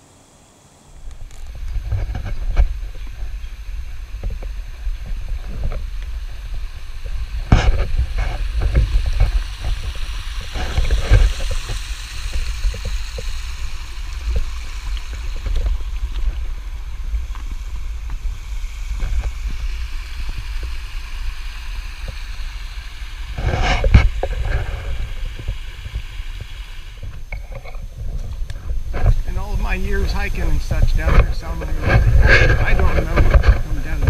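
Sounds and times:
scraping noise: 0.0 - 3.4, 7.0 - 13.3, 23.3 - 34.0
footsteps on loose stones: 4.2 - 19.8, 23.4 - 34.0.

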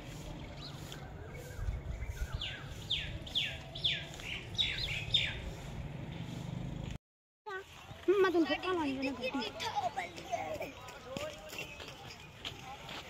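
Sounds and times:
soft bird chirps: 0.1 - 6.4.

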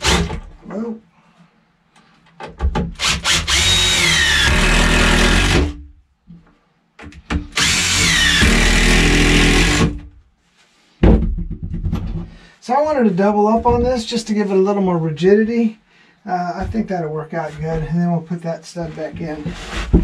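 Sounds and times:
impact driver driving screws: 2.9 - 5.8, 7.5 - 10.0.

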